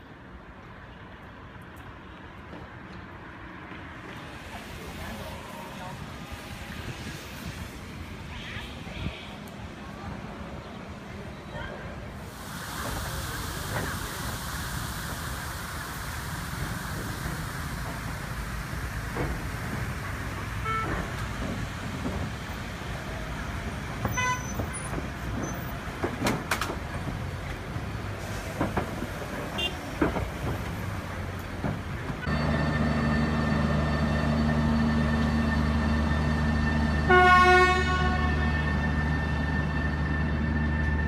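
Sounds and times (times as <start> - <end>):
busy street traffic: 0.0 - 41.0
train humming: 2.3 - 41.0
loud train horn: 37.0 - 39.1.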